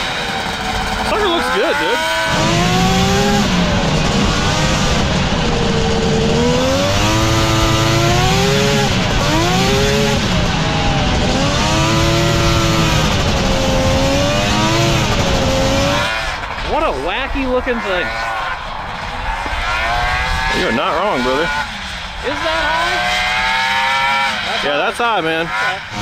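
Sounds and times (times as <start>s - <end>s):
two-stroke engine revving: 0.0s - 26.0s.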